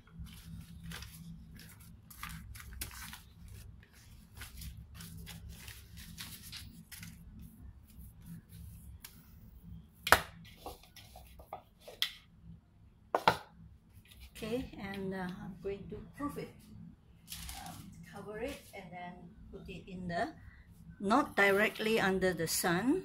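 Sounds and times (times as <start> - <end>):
steady low hum: 0.0 - 23.0
wrapper rustling and crinkling: 0.1 - 8.3, 17.2 - 18.8.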